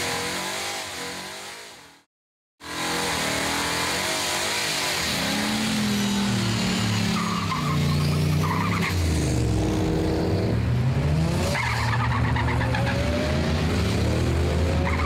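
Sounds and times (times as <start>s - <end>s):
racing car engines revving: 0.0s - 15.0s
tyre squeal: 6.9s - 9.0s.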